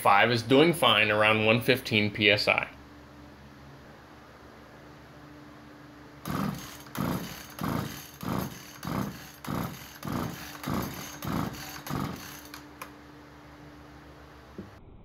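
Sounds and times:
chainsaw recoil starter pulls: 0:06.3 - 0:12.9.

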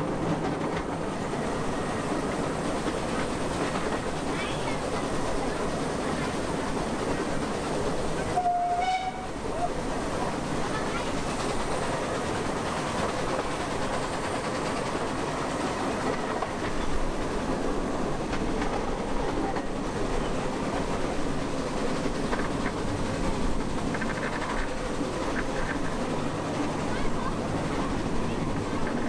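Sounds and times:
clickety-clack over rail joints: 0:00.0 - 0:29.0
train wheels rumbling on rails: 0:00.0 - 0:29.0.

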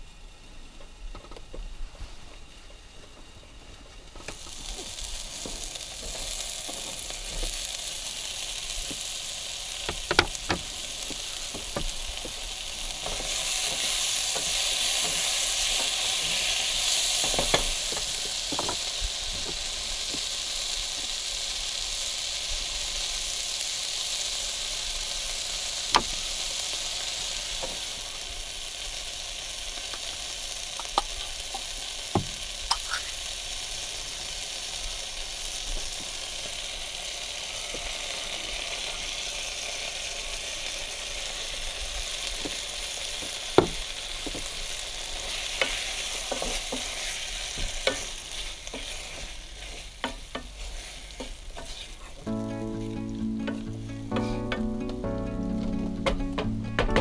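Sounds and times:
vegetables sizzling in a pan: 0:01.6 - 0:57.0
wooden spoon knocking on pan: 0:32.2 - 0:32.4, 0:55.8 - 0:57.0.

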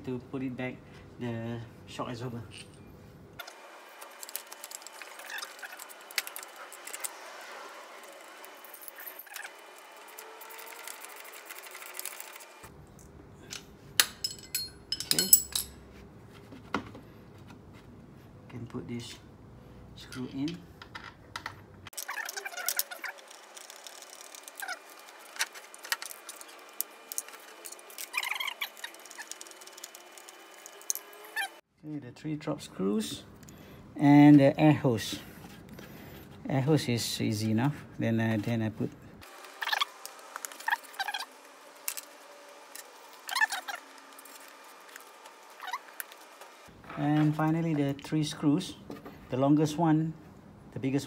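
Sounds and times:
metallic clinks of tools: 0:14.0 - 0:15.8.

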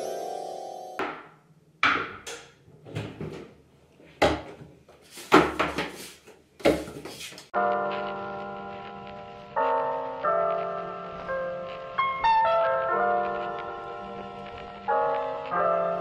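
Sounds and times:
music chord: 0:00.0 - 0:01.0.

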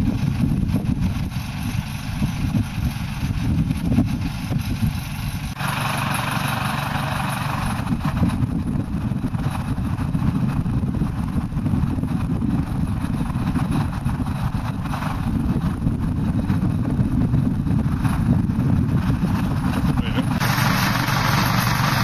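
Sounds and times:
tractor engine idling: 0:00.1 - 0:10.0, 0:18.9 - 0:22.0.

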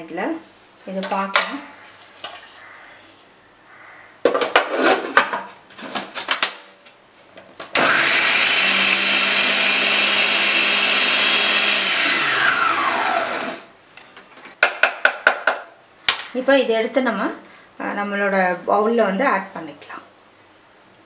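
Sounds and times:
food processor motor running: 0:07.8 - 0:13.7.

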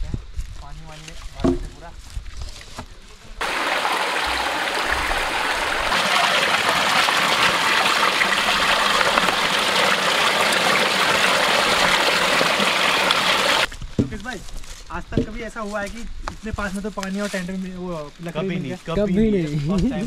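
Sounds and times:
stream water rushing: 0:03.4 - 0:13.7.

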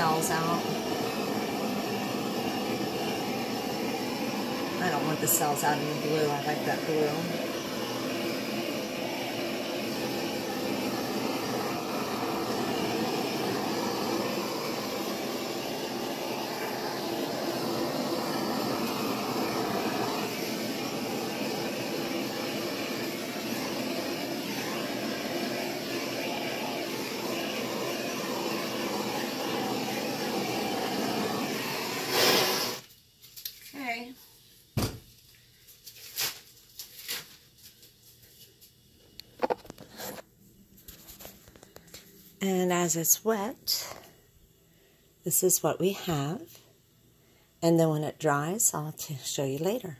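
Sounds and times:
gas torch flame hissing: 0:00.0 - 0:32.9.

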